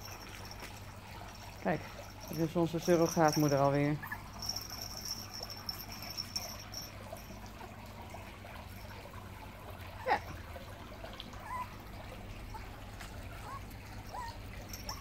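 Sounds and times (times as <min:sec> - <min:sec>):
puppy yelp: 0:04.0 - 0:04.8, 0:10.0 - 0:10.4, 0:11.4 - 0:11.8, 0:13.4 - 0:15.0.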